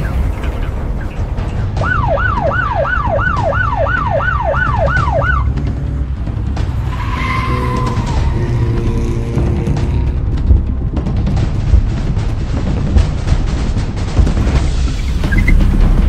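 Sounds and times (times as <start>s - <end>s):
low steady rumble: 0.0s - 16.0s
emergency siren yelping: 1.8s - 5.7s.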